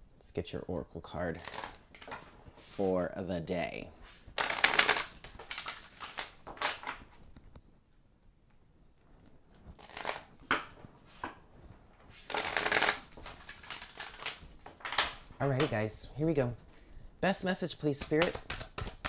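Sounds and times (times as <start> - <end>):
cards being shuffled: 1.4 - 2.9, 4.0 - 7.6, 9.2 - 15.7, 17.8 - 19.0.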